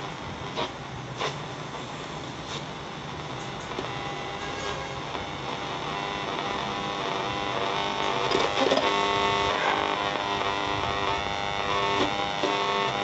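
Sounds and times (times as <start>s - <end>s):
radio crackle: 0.0s - 13.0s
shortwave radio hiss: 0.0s - 13.0s.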